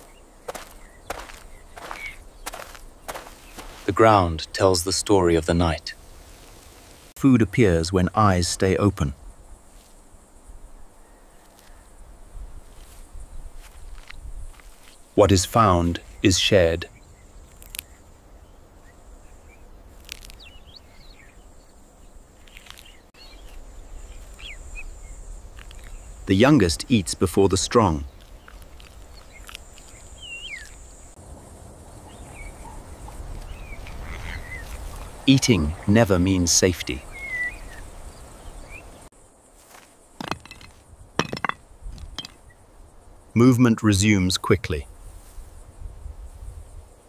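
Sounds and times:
bird chirps: 0.0s - 3.8s, 27.9s - 31.1s, 32.1s - 39.1s
walking stick knocking on stony ground: 0.0s - 3.9s, 39.7s - 42.4s
footsteps on gravel: 0.0s - 4.2s, 12.8s - 15.0s
open-air ambience: 0.0s - 47.0s.

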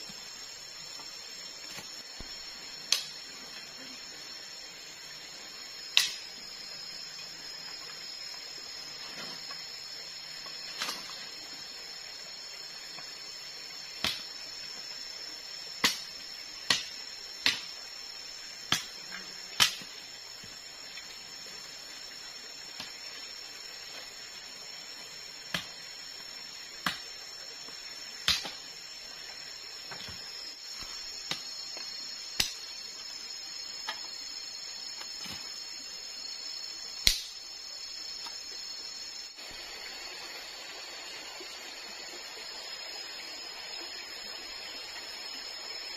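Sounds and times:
forest insects buzzing: 0.0s - 45.9s
blade chopping bamboo: 18.7s - 19.0s, 19.6s - 19.9s, 28.2s - 28.6s, 37.0s - 37.3s.

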